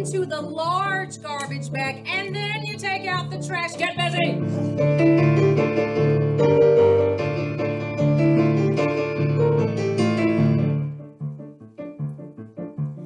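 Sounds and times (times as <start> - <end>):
upbeat digital piano music: 0.0 - 13.0.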